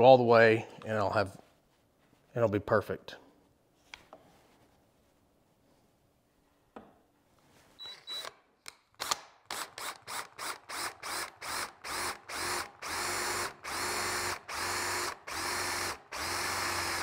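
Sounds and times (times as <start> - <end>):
cordless drill boring metal: 9.6 - 17.0.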